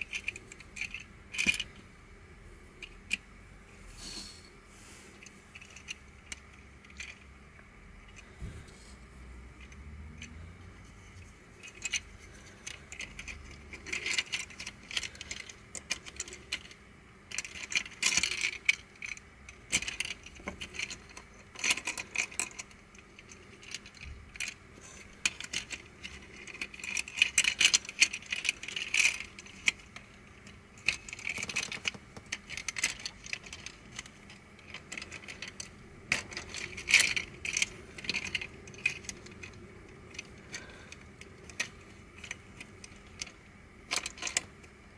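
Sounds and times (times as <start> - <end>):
plastic puzzle pieces clicking: 0.0 - 1.8, 11.6 - 44.9.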